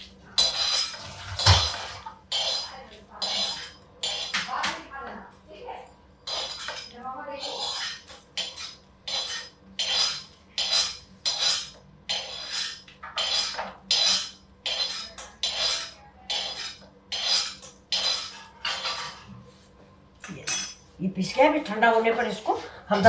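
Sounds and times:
steel spoon scraping metal pan: 0:00.0 - 0:04.6, 0:06.2 - 0:19.3.

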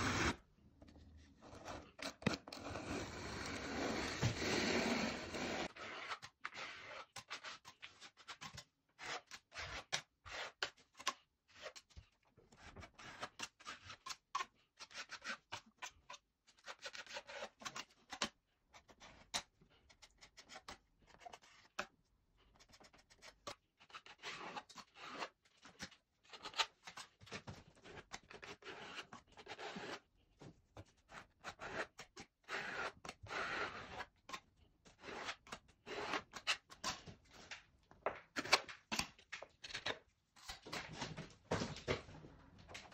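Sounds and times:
metal spatula scraping plaster: 0:00.0 - 0:40.9.

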